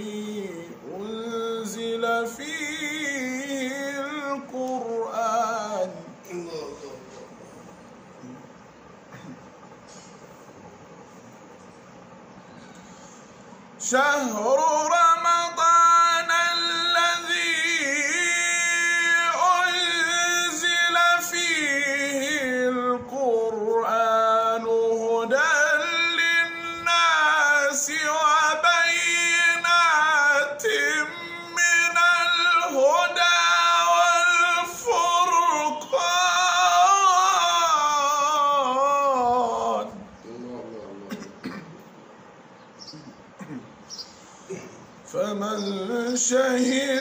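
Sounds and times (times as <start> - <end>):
man reciting melodically: 0.0 - 7.9, 13.7 - 41.6, 44.5 - 47.0.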